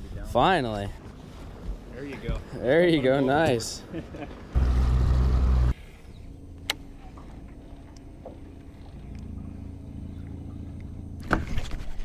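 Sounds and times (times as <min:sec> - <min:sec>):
boat motor humming: 0:04.5 - 0:05.8.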